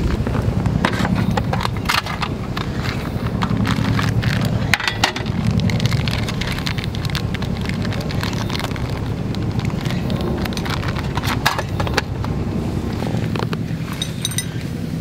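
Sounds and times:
steady low hum: 0.0s - 15.0s
plastic bag crinkling: 1.2s - 12.2s.

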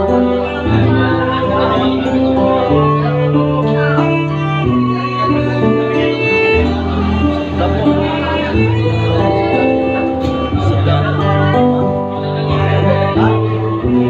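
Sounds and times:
bowed violin melody: 0.0s - 14.0s
strummed acoustic guitar: 0.0s - 14.0s.

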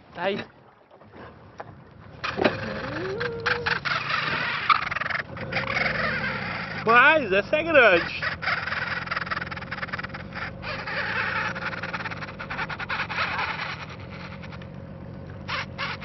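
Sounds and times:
low steady hum: 0.0s - 16.0s
fishing reel drag clicking: 2.3s - 7.0s, 7.8s - 14.7s.

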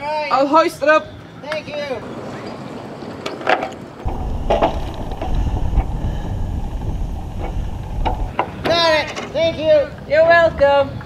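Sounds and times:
wind buffeting microphone: 4.0s - 11.0s.

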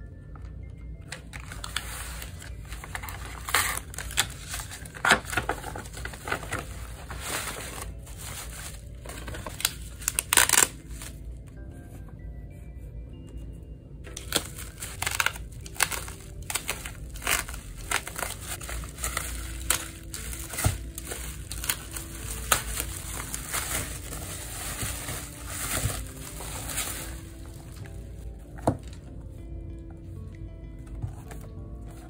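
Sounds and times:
bubble-wrap mailer crinkling: 1.1s - 11.3s, 14.1s - 29.0s.

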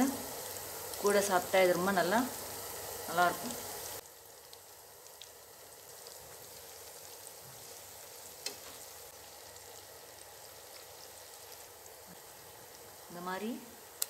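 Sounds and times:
oil sizzling: 0.0s - 14.0s
metal tongs clicking on pan: 8.4s - 8.7s.

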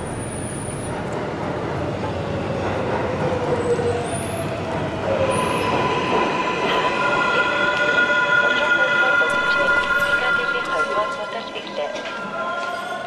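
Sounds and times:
subway train rumble: 0.0s - 13.0s
high squealing tones: 5.2s - 13.0s.

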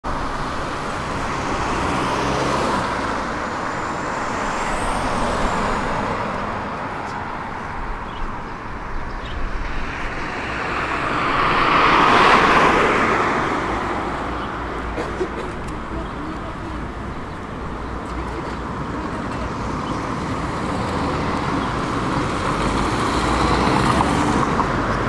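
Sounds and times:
road traffic noise: 0.0s - 25.0s
vehicle passing by: 0.3s - 8.1s, 9.5s - 14.8s.

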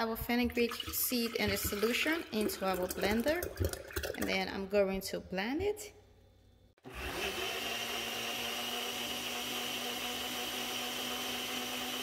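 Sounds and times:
blender running: 6.8s - 12.0s.

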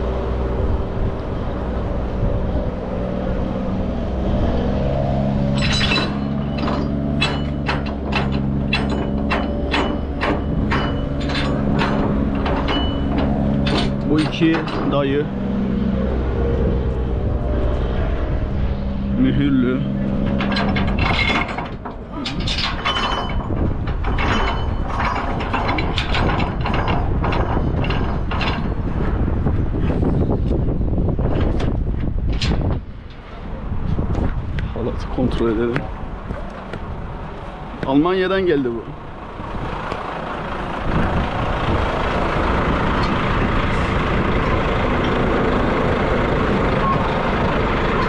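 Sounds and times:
heavy truck engine running: 0.0s - 48.0s
low rumble: 0.0s - 48.0s
metallic clicks and rattles: 5.5s - 15.2s, 20.2s - 29.4s.

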